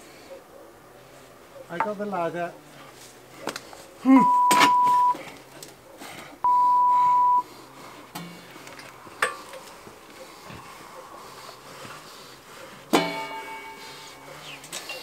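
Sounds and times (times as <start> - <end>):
censor bleep tone: 4.2 - 5.2, 6.5 - 7.4.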